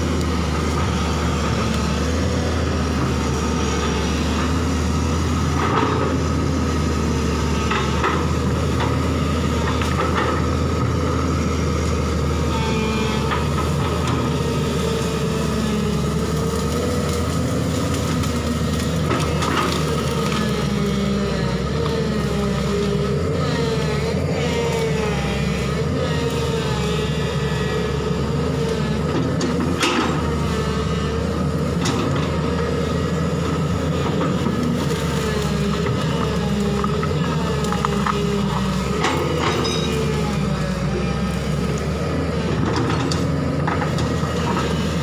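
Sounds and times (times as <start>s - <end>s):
excavator diesel engine running: 0.0s - 45.0s
branches cracking: 15.2s - 22.7s.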